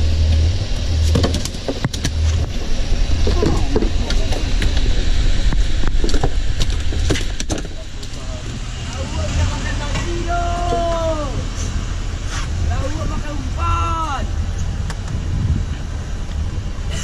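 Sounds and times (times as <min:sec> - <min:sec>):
boat engine droning: 0:00.0 - 0:17.0
sharp knocks and clatter: 0:01.0 - 0:02.7, 0:05.5 - 0:08.6.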